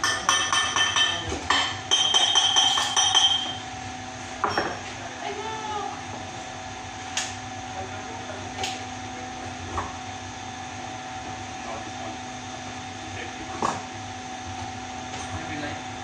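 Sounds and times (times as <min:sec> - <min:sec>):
sharp knocks of metal handling: 0:00.0 - 0:03.6
workshop machine hum: 0:00.0 - 0:16.0.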